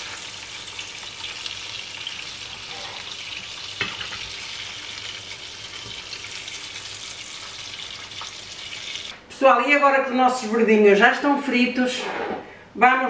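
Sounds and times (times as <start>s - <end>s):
oil sizzling in a frying pan: 0.0s - 9.2s.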